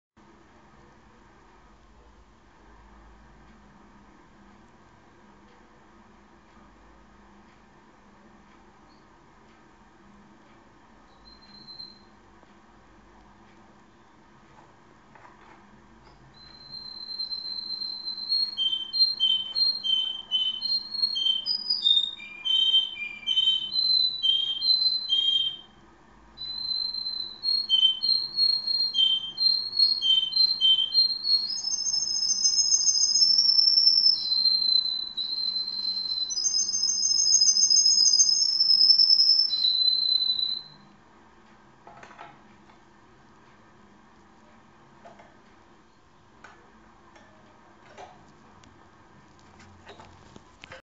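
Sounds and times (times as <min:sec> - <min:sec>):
canary singing with trills: 0:11.1 - 0:12.2, 0:16.3 - 0:25.8, 0:26.4 - 0:40.9.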